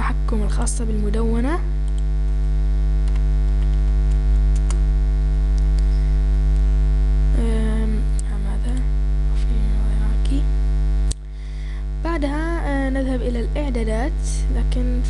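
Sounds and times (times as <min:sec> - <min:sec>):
electrical mains hum: 0:00.0 - 0:15.0
faint keyboard and mouse clicks: 0:01.9 - 0:02.1, 0:03.0 - 0:04.8.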